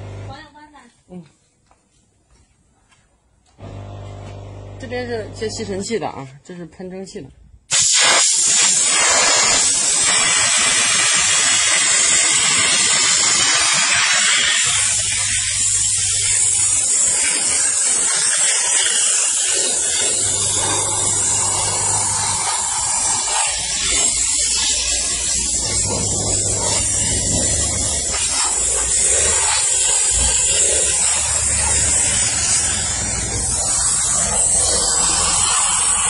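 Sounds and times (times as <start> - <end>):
steam spray gun hissing: 7.7 - 36.0.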